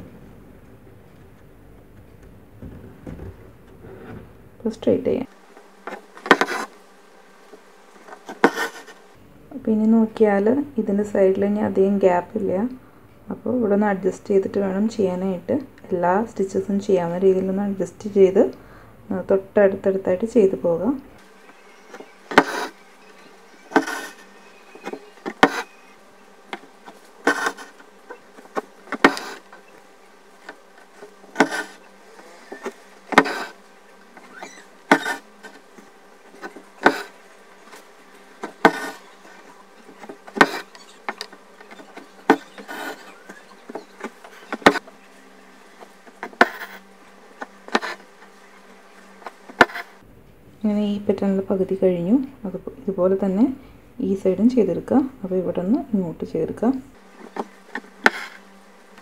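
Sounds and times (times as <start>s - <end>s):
faint steady hum: 0.0s - 59.0s
needle punching through cloth: 5.8s - 6.8s, 8.1s - 9.0s, 21.9s - 22.8s, 23.6s - 25.9s, 26.5s - 29.6s, 30.4s - 31.8s, 32.4s - 33.6s, 34.2s - 35.6s, 36.3s - 37.2s, 38.4s - 39.1s, 40.0s - 44.8s.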